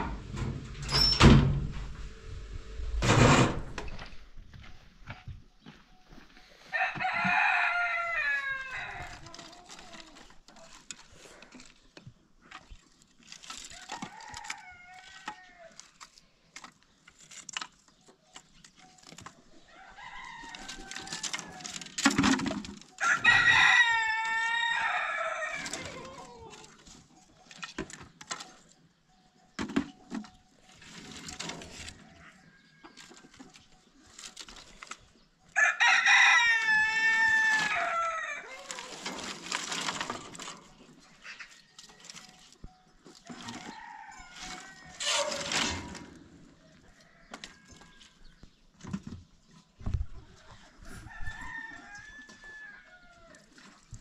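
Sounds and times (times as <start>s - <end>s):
rooster crowing: 6.7s - 9.1s, 23.0s - 26.0s, 35.6s - 38.9s, 51.0s - 53.4s.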